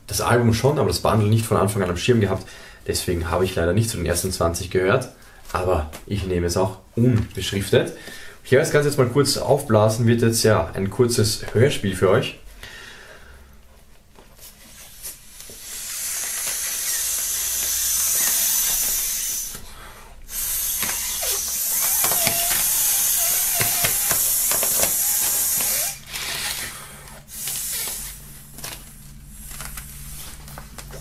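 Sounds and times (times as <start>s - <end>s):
breath hissing through a valve: 15.5s - 26.0s.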